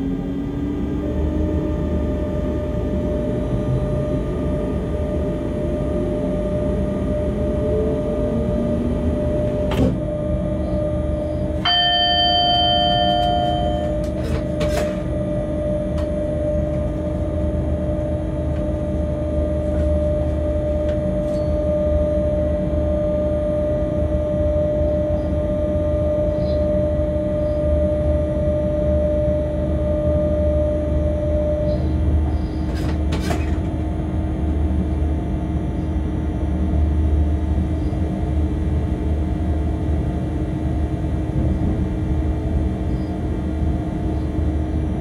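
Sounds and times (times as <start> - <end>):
locomotive rumble with motor whine: 0.0 - 45.0
electronic warning beep: 1.8 - 32.7.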